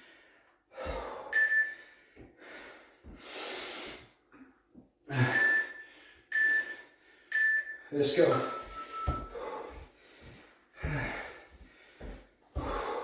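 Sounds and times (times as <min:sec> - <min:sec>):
man breathing hard: 0:00.0 - 0:07.4, 0:08.6 - 0:13.0
timer beeps: 0:01.3 - 0:01.9, 0:05.2 - 0:09.4.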